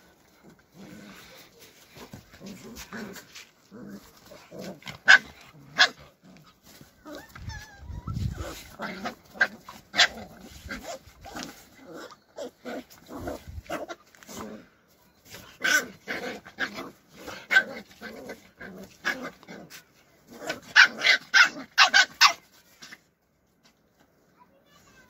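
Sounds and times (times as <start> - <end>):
puppies growling: 0.0 - 21.8.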